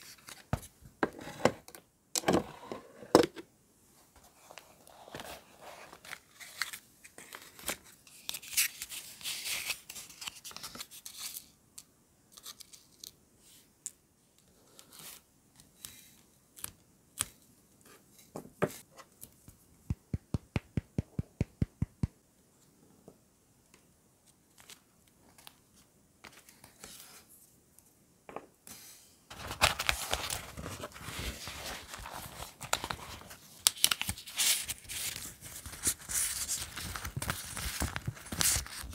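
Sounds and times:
paper and sticker sheets crinkling: 29.3s - 38.9s
paper rustling: 29.3s - 38.9s.

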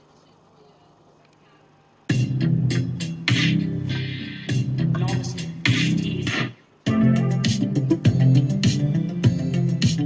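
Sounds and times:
electronic music with heavy bass: 2.1s - 10.0s.

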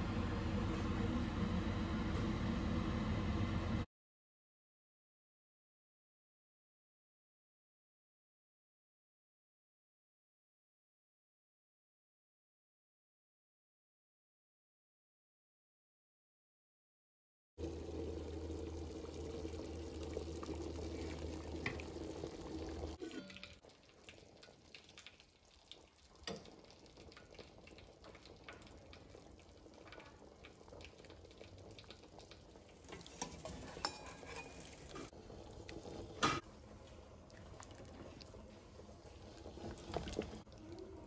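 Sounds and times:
stew simmering and bubbling: 0.0s - 3.8s, 17.6s - 41.0s
low hum: 0.0s - 3.9s.

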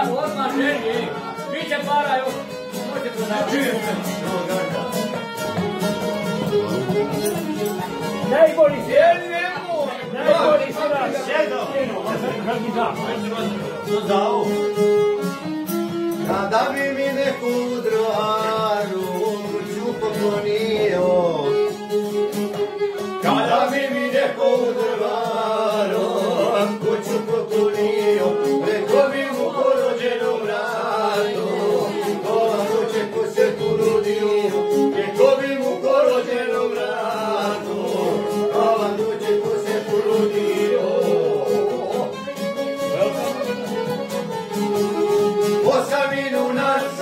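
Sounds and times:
plucked string instrument: 0.0s - 47.0s
violin: 0.0s - 47.0s
man singing: 16.2s - 21.8s, 23.2s - 43.3s, 45.5s - 47.0s.

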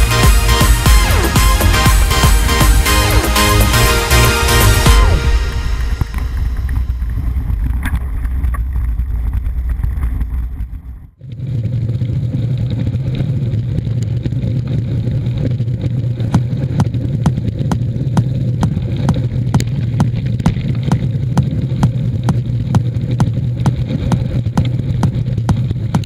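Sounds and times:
wind and tyres rumbling: 5.1s - 26.0s
bike rattling and clicking: 6.6s - 26.0s.

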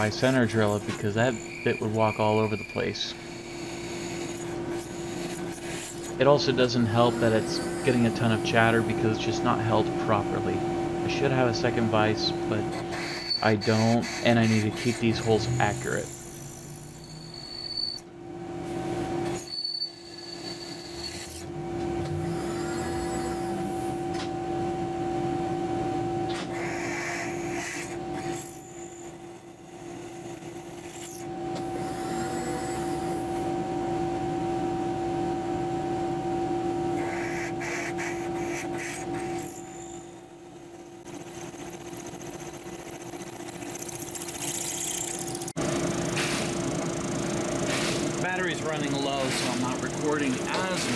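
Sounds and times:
drill bit cutting and chattering: 0.0s - 9.3s, 12.7s - 18.0s, 19.4s - 21.5s, 22.3s - 23.8s, 26.6s - 31.2s, 37.0s - 45.6s, 48.1s - 50.9s
drill press motor humming: 0.0s - 18.2s, 19.1s - 24.4s, 27.3s - 33.6s, 36.9s - 50.9s.

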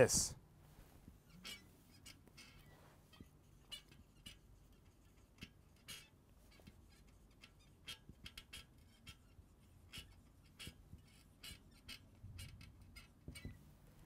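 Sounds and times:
marker pen squeaking on whiteboard: 1.0s - 14.0s.

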